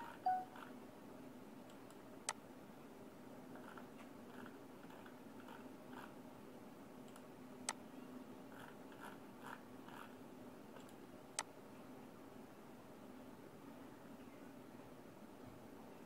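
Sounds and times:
faint room hum: 0:00.0 - 0:16.0
computer mouse clicks: 0:07.0 - 0:07.8, 0:10.8 - 0:11.5.

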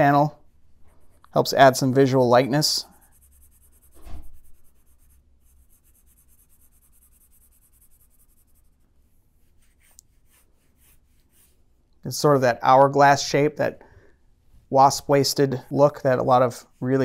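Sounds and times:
pencil strokes on paper: 0:00.3 - 0:11.8, 0:15.7 - 0:17.0.

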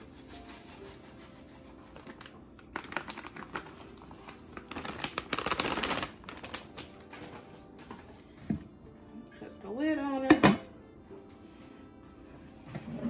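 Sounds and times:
plastic bag crinkling: 0:02.0 - 0:07.5.

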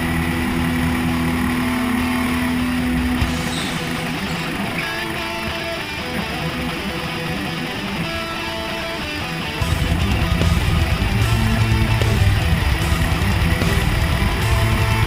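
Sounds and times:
electric guitar music: 0:00.0 - 0:15.0
go-kart engine running: 0:00.0 - 0:15.0.

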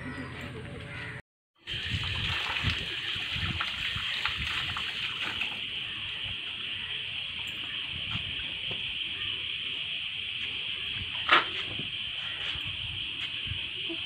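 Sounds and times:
tap water running and splashing: 0:01.6 - 0:06.7.

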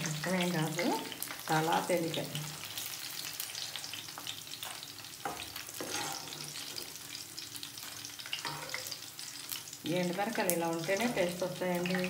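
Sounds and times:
vegetables sizzling in hot oil: 0:00.0 - 0:12.0
metal spoon scraping a wok: 0:05.8 - 0:06.8.

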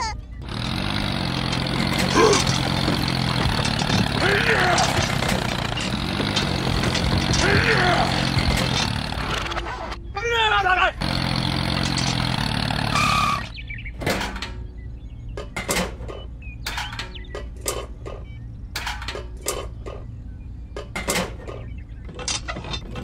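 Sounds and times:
small motor running: 0:00.4 - 0:10.0, 0:11.0 - 0:13.6.

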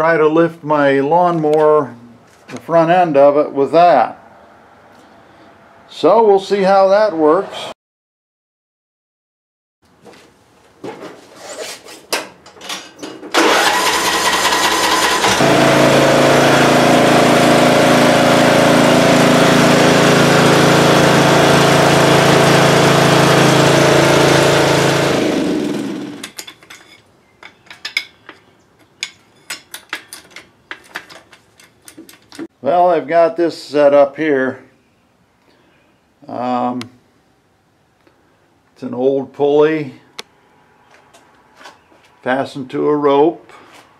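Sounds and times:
riding lawn mower engine: 0:13.3 - 0:26.4.

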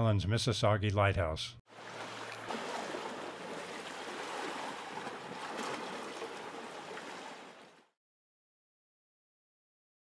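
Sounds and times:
small waves lapping on rocks: 0:01.7 - 0:07.9.

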